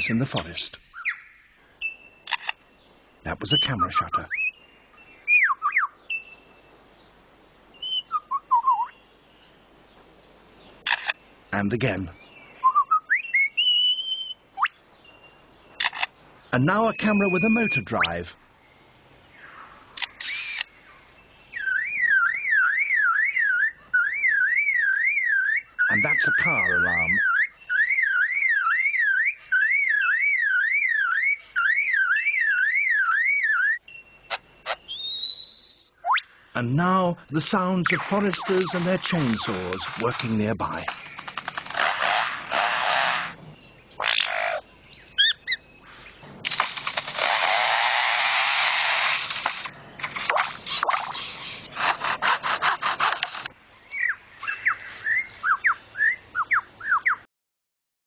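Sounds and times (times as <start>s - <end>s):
bird whistling short notes: 7.8s - 8.9s, 12.6s - 14.7s, 20.1s - 20.7s
bird mimicking car alarm: 15.8s - 18.2s, 21.5s - 45.8s
bird mimicking chainsaw rasps: 20.1s - 20.6s, 37.8s - 43.4s, 46.9s - 53.5s.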